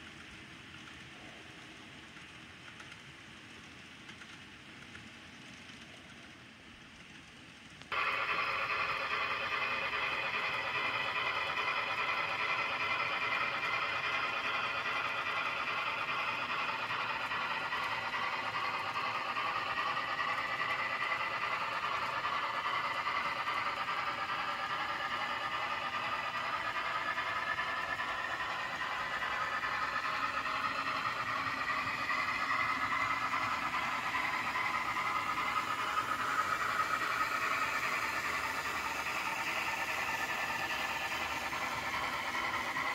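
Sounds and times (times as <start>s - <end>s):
model train motors whirring: 7.0s - 42.9s
rising and falling whine: 11.7s - 42.9s.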